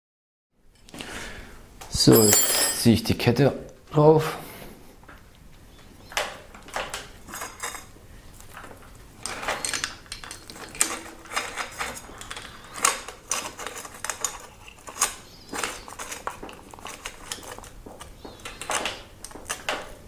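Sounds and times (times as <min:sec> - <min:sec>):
bicycle chain rattling and clinking: 0:02.1 - 0:02.9.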